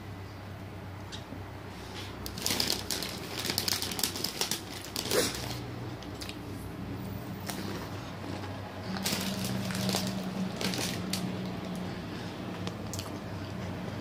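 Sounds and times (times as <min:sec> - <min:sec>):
steady low hum: 0:00.0 - 0:14.0
chewing crunchy snacks: 0:02.2 - 0:06.5, 0:07.4 - 0:13.7.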